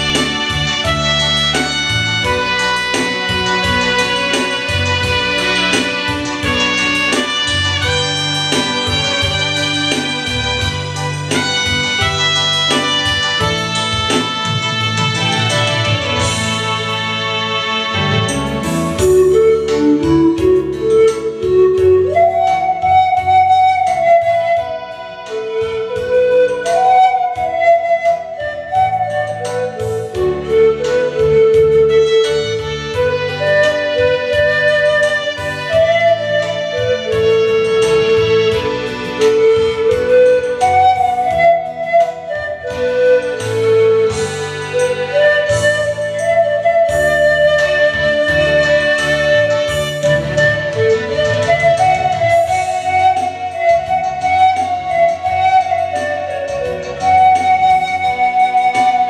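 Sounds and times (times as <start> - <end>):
pulsing bass line: 0.0 - 22.2
backing track with steady beat: 0.0 - 59.0
pan flute melody: 0.0 - 59.0.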